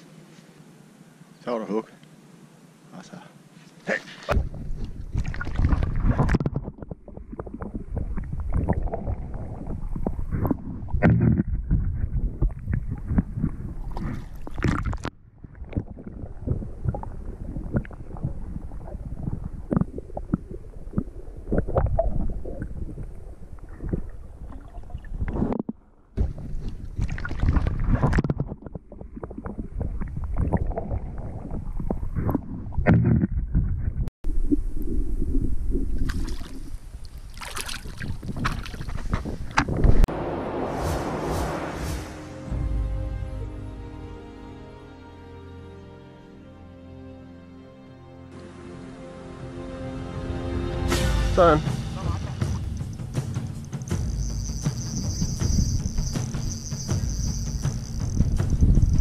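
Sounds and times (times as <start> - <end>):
water sloshing and gurgling: 4.3 - 40.1.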